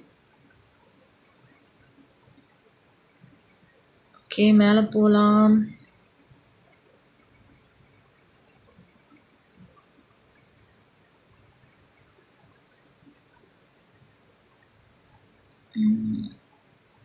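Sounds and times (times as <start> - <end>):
faint high chirp: 14.1 - 17.0.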